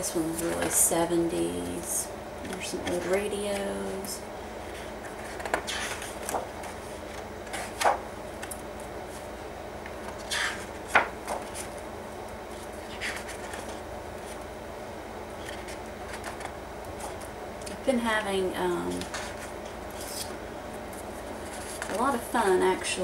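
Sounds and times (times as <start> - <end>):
paper sheets rustling: 2.5 - 9.3, 9.9 - 11.8, 12.5 - 14.5, 15.4 - 17.3, 18.8 - 22.2.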